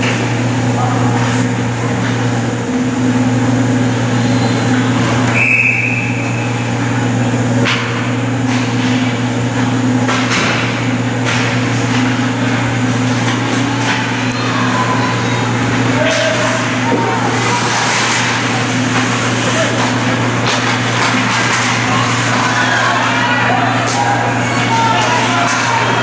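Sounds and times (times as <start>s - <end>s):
referee's whistle: 5.3s - 6.6s
hockey sticks and puck clacking: 7.6s - 26.0s.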